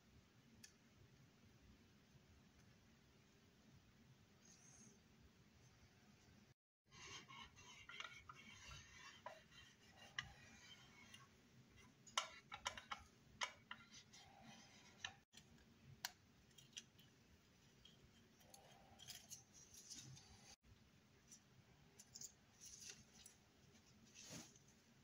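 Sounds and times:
soft rubbing of foil: 0:22.5 - 0:25.0.

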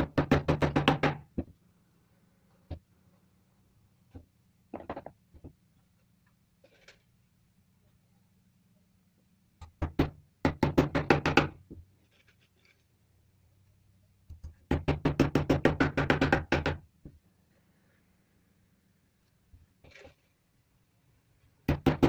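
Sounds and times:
hammer tapping on wooden board: 0:00.0 - 0:01.6, 0:09.6 - 0:11.8, 0:14.3 - 0:17.2, 0:21.7 - 0:22.0.

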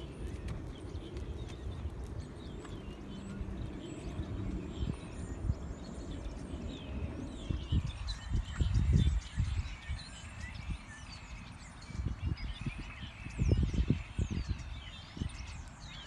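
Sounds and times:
hoofbeats on sand: 0:00.0 - 0:04.8
small birds chirping: 0:00.0 - 0:16.0.

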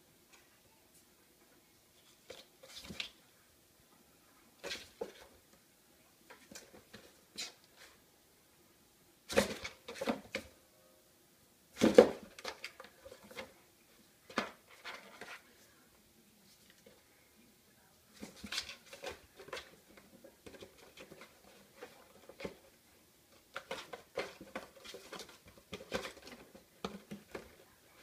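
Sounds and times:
box bumping on tile floor: 0:09.3 - 0:10.5, 0:11.8 - 0:13.5, 0:23.5 - 0:27.6
cat scratching cardboard box: 0:23.4 - 0:28.0.

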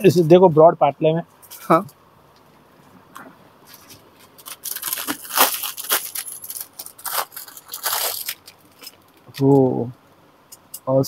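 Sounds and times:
plastic bag crinkling: 0:03.7 - 0:09.4.

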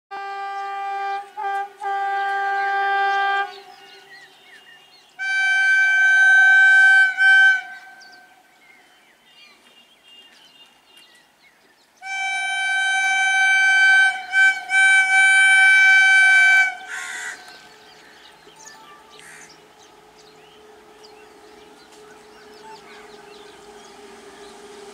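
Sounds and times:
electric locomotive horn blasts: 0:00.1 - 0:08.6, 0:12.0 - 0:24.9.

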